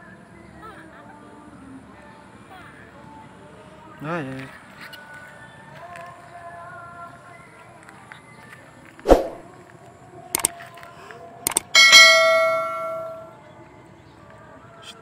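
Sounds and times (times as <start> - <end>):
quick clicks: 10.4 - 10.6, 11.5 - 11.8
bell ding: 11.5 - 13.3.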